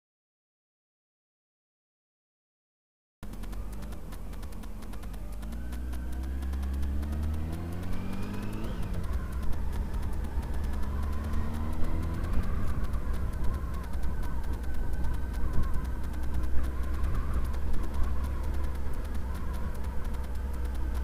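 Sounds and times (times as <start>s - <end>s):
motorcycle engine accelerating: 3.2s - 21.0s.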